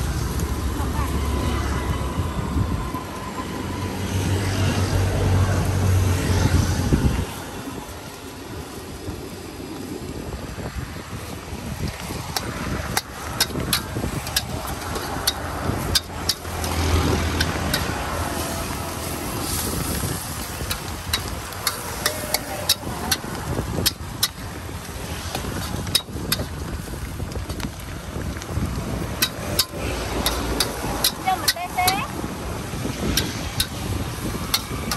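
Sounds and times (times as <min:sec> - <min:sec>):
road traffic noise: 0:00.0 - 0:34.9
vehicle passing close by: 0:12.0 - 0:26.8.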